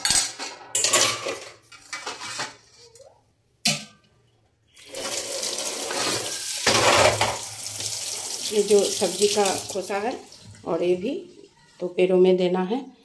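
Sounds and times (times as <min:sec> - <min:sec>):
plates clattering in sink: 0:00.0 - 0:02.6, 0:03.6 - 0:04.1, 0:05.8 - 0:07.6.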